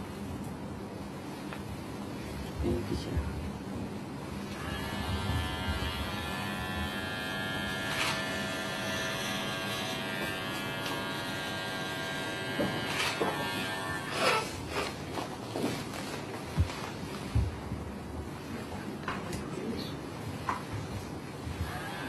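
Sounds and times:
electric hair clippers cutting hair: 0:04.5 - 0:15.0, 0:21.6 - 0:22.0.

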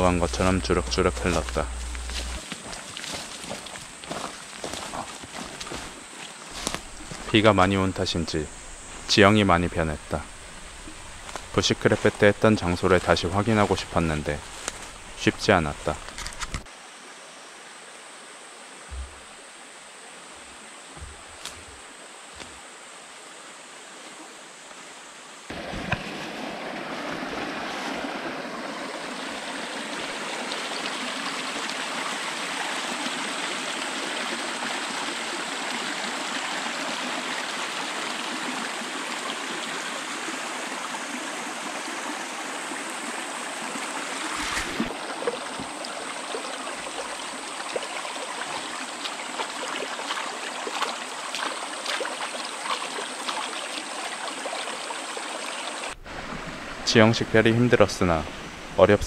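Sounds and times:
stream babbling over rocks: 0:00.0 - 0:16.2, 0:25.5 - 0:57.0
thump: 0:18.9 - 0:19.3.

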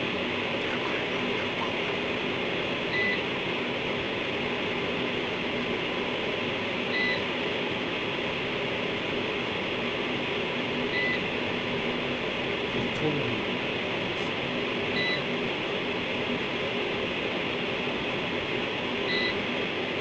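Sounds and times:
faint hum: 0:00.0 - 0:20.0.

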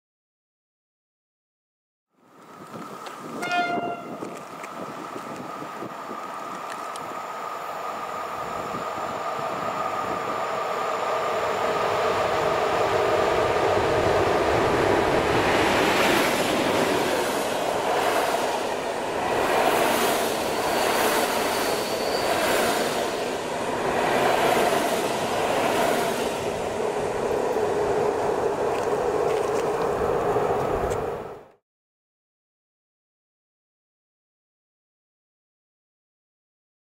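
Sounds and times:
wheel-on-rail hum: 0:02.2 - 0:31.6
train passing with loud rumble: 0:02.4 - 0:31.6.

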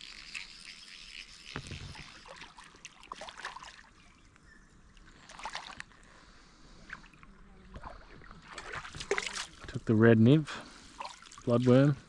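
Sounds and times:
fish splashing in water: 0:01.0 - 0:04.2, 0:05.2 - 0:05.9, 0:06.8 - 0:09.7, 0:11.0 - 0:11.6.

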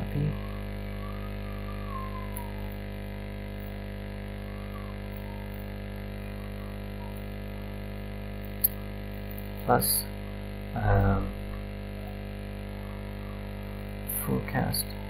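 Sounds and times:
faint wavering tones: 0:00.0 - 0:08.8
electrical hum: 0:00.0 - 0:15.0.

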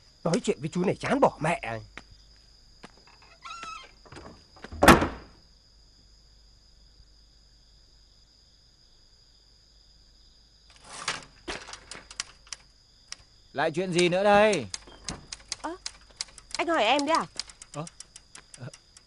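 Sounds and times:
wooden door slamming: 0:03.4 - 0:05.4, 0:14.0 - 0:15.3
typewriter keys clacking: 0:11.5 - 0:12.6, 0:14.0 - 0:19.0.

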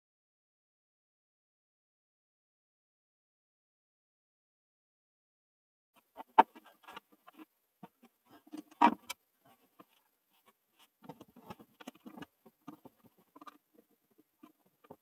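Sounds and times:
clicks taps and scrapes of wiring: 0:06.0 - 0:15.0.

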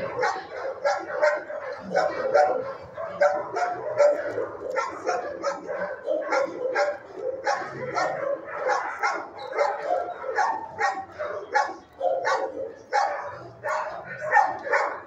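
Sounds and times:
dogs barking: 0:00.0 - 0:15.0.

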